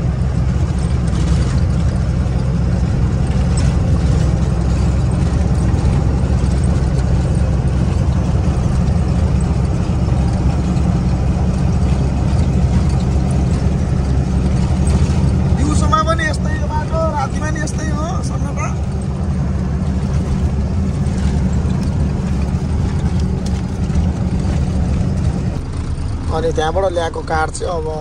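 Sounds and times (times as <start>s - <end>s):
truck engine and road drone: 0.0s - 28.0s.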